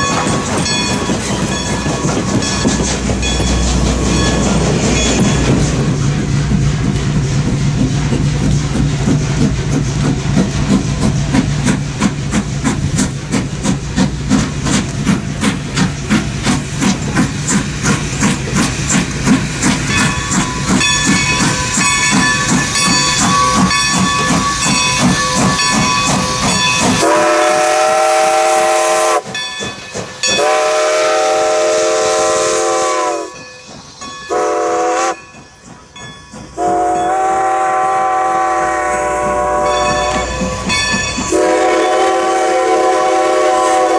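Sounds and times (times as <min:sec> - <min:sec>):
steam locomotive chuffing: 0:00.0 - 0:43.9
steam whistle blasts: 0:26.4 - 0:29.3, 0:30.3 - 0:33.3, 0:34.3 - 0:35.2, 0:36.6 - 0:40.3, 0:41.3 - 0:43.9.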